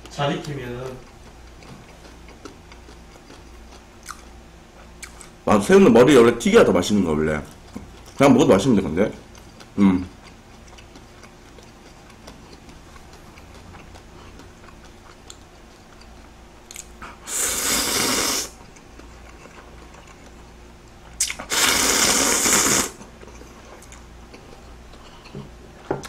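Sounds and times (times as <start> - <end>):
person slurping noodles: 17.2 - 18.6, 21.4 - 23.0.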